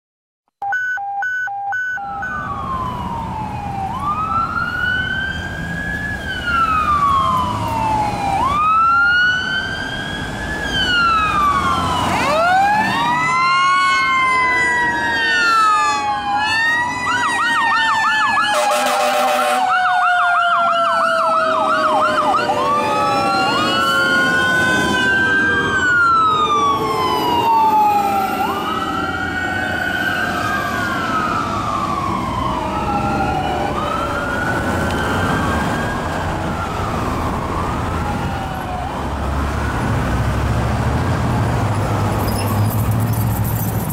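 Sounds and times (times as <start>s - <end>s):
siren yelp: 0.6s - 39.9s
electronic wail sirens: 0.6s - 40.4s
truck engines and traffic rumble: 0.6s - 43.9s
air horn blast: 18.5s - 19.7s.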